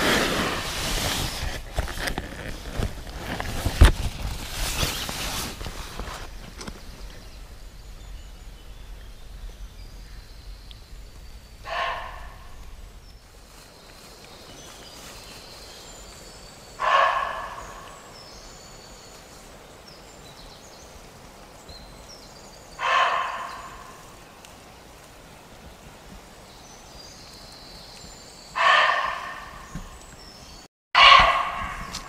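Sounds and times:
deer barking: 11.7 - 12.6, 16.8 - 18.0, 22.8 - 23.9, 28.6 - 29.8, 31.0 - 32.0.

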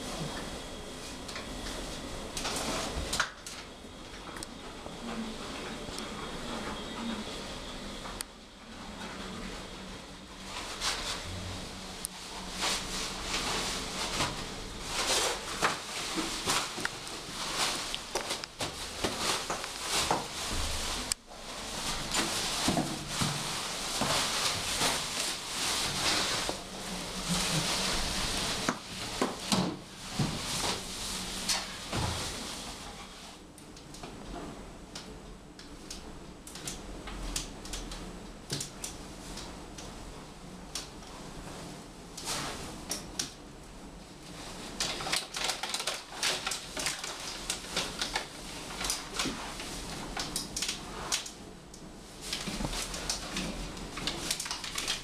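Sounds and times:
toilet paper rustling and tearing: 9.2 - 33.4, 44.4 - 51.4, 52.0 - 55.0.

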